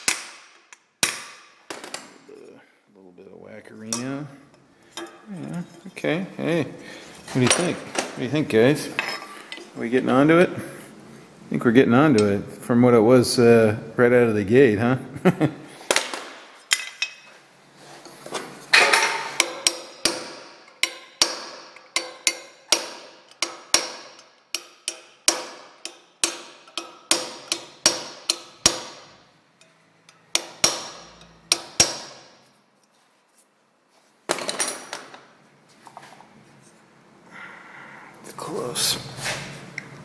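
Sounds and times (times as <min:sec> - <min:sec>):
hammer tapping on metal: 0:19.0 - 0:29.0.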